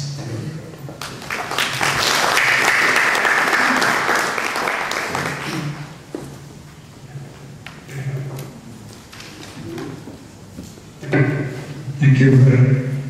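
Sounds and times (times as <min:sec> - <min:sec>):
audience applauding: 0:01.0 - 0:06.0.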